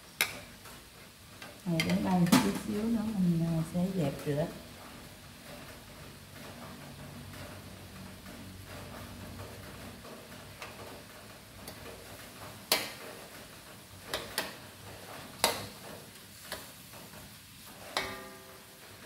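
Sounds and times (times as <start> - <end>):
faint sizzle: 0.0 - 19.0
metal spatula clanking on wok: 17.9 - 18.5.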